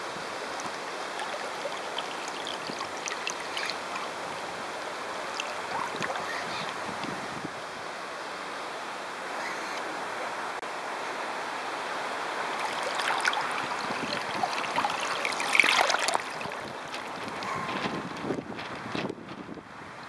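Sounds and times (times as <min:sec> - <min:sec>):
water splashing along hull: 0:00.0 - 0:07.5, 0:12.0 - 0:19.1
wind on microphone: 0:05.4 - 0:07.8, 0:13.3 - 0:20.0.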